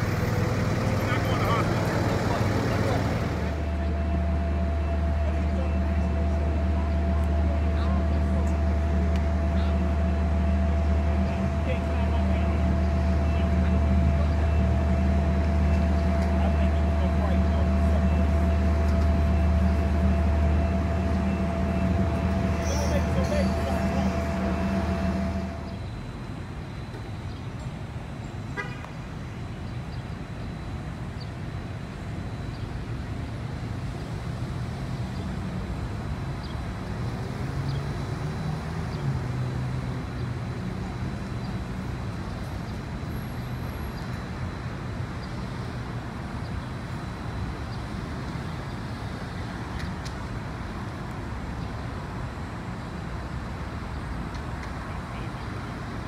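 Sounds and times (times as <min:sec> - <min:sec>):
traffic rumble: 0:00.0 - 0:56.0
vehicle horn: 0:17.7 - 0:25.7, 0:28.6 - 0:28.9.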